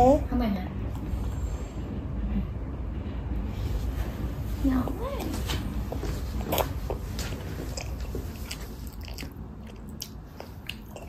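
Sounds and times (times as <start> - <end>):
low steady hum: 0.0 - 11.0
toddler chewing with mouth smacks: 5.9 - 11.0.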